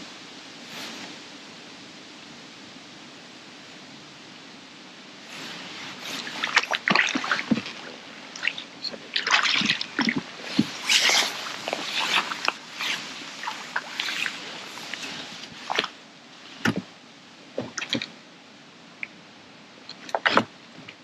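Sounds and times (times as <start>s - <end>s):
fish splashing at water surface: 5.9s - 16.0s, 17.6s - 18.2s.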